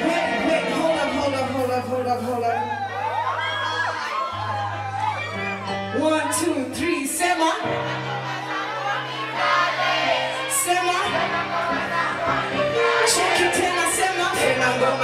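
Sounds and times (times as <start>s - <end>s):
person singing into a microphone: 13.1s - 15.0s.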